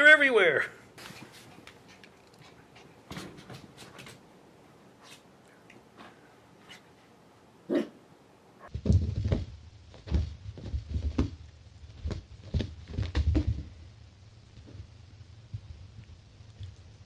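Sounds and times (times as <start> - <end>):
cat scrambling on carpet: 8.7 - 13.7.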